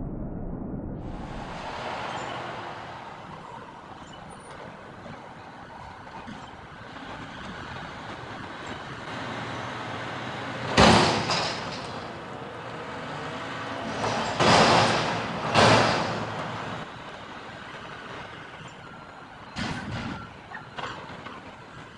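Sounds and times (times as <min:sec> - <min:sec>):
garbage truck engine revving: 0:06.8 - 0:16.9
loud metal bangs: 0:10.6 - 0:12.3, 0:13.7 - 0:16.9.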